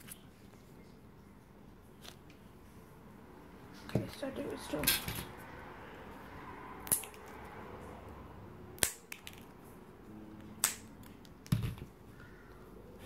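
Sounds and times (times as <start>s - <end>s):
scissors snipping plastic straw: 10.6s - 11.3s.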